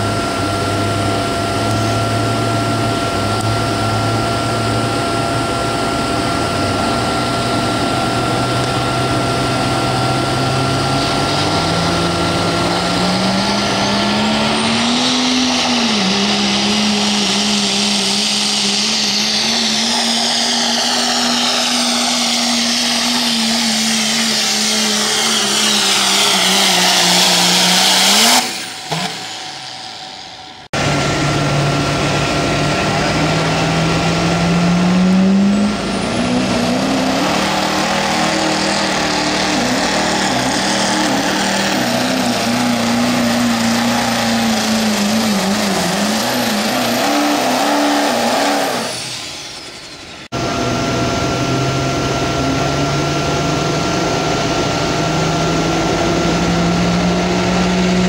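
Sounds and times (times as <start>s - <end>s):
diesel pickup engine revving: 0.0s - 58.0s
pickup engine running: 0.0s - 58.0s.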